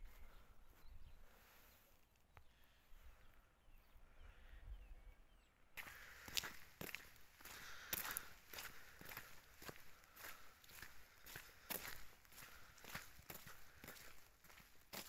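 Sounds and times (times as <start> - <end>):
faint bird chirps: 0.0 - 6.0
footsteps on gravel: 5.8 - 15.0.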